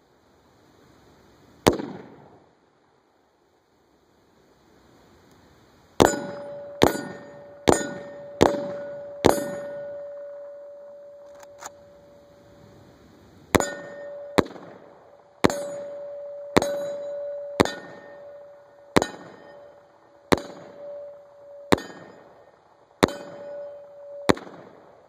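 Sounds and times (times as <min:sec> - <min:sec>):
rifle shots: 0:01.6 - 0:02.4, 0:06.0 - 0:12.3, 0:13.5 - 0:25.0
steel target ringing: 0:06.0 - 0:12.8, 0:13.5 - 0:24.9.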